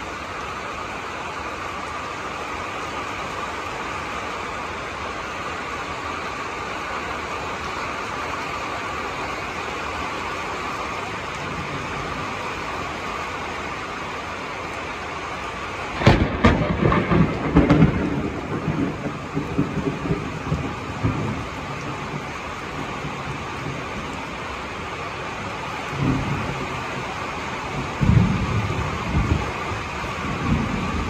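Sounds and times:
heavy rain hissing: 0.0s - 31.0s
thunderclap and rumbling thunder: 15.9s - 24.4s, 25.8s - 31.0s.

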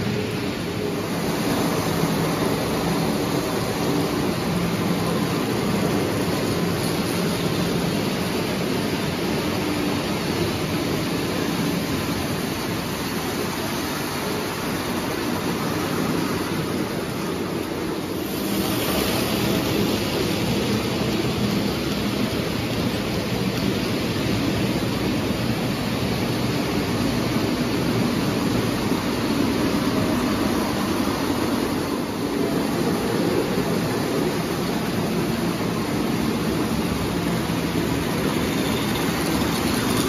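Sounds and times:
toy train wheels rattling on rails: 38.3s - 40.0s.

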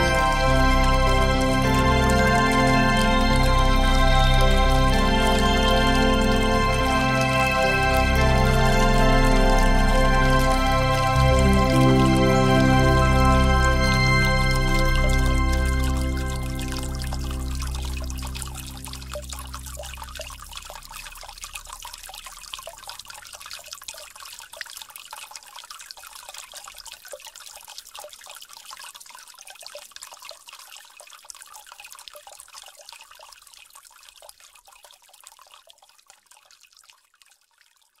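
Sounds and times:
low music note: 0.0s - 20.9s
water trickling and dripping: 0.0s - 38.0s.

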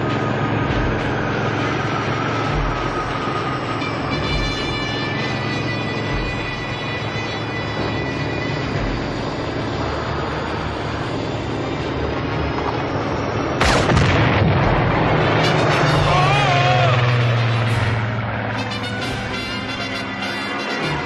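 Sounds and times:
propeller plane engine drone: 0.0s - 21.0s
sudden loud burst: 13.6s - 18.0s.

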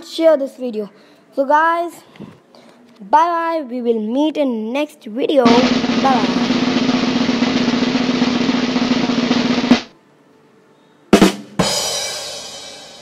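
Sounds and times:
sharp drum hits ringing out: 5.5s - 9.9s
snare drum roll: 5.5s - 9.9s.

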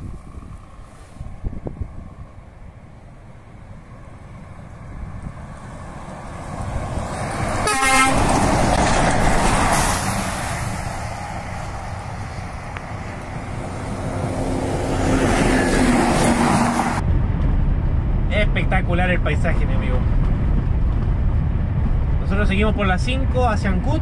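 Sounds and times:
truck passing by: 0.0s - 17.8s
vehicle passing with low engine: 0.0s - 18.2s
truck horn blast: 7.6s - 8.4s.

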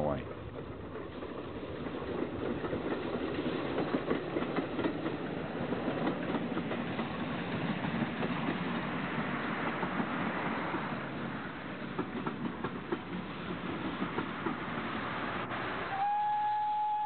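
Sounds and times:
wheels clattering on rails: 0.1s - 15.8s
steam locomotive exhaust: 6.5s - 17.0s.

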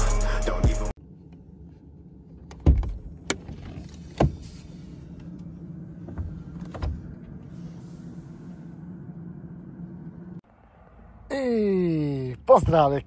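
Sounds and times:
truck cab door clicks and knocks: 2.5s - 4.4s.

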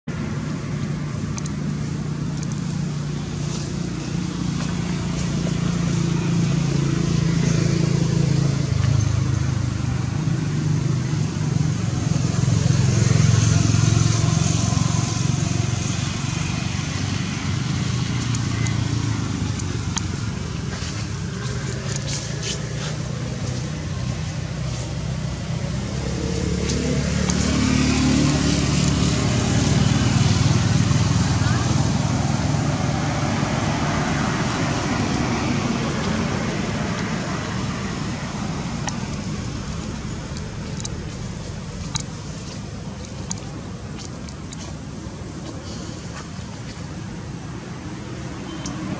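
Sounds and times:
motor engine running: 0.3s - 47.3s.

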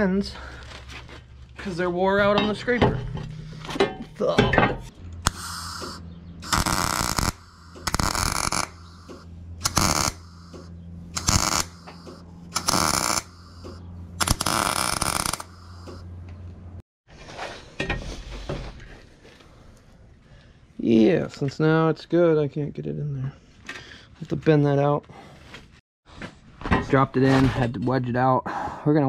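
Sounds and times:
steady electrical hum: 5.2s - 16.0s
welding arc crackle: 5.2s - 16.0s.

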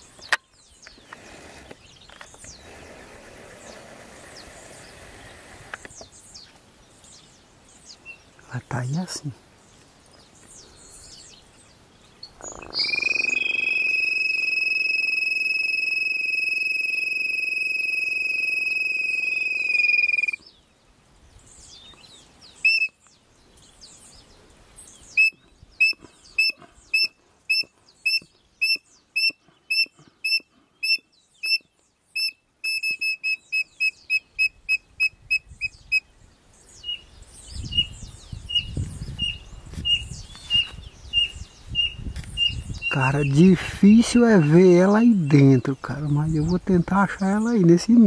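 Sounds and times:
bird whistling calls: 12.2s - 20.4s, 22.5s - 23.0s, 25.0s - 36.1s
bird-call pipe whistling: 12.2s - 20.4s, 21.9s - 23.1s, 25.0s - 36.1s.

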